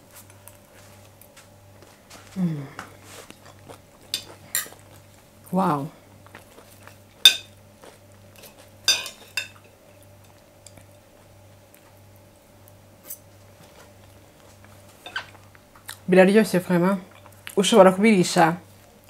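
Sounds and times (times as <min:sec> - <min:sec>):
cutlery clinking against a plate: 0:07.2 - 0:07.6, 0:08.4 - 0:09.7, 0:15.0 - 0:15.4.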